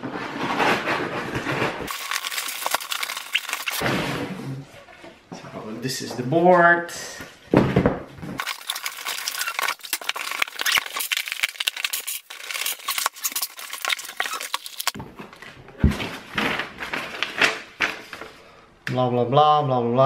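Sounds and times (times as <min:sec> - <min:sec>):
cardboard crackling and scraping: 0:00.1 - 0:04.2, 0:08.4 - 0:18.2.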